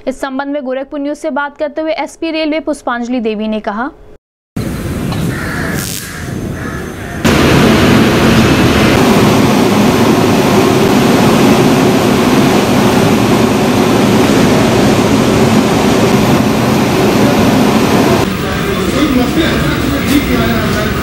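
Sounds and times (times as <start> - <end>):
locomotive engine droning: 4.6 - 21.0.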